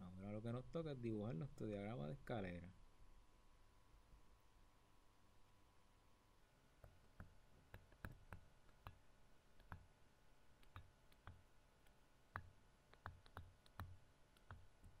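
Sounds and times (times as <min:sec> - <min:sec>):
stylus tapping tablet screen: 0:06.8 - 0:15.0.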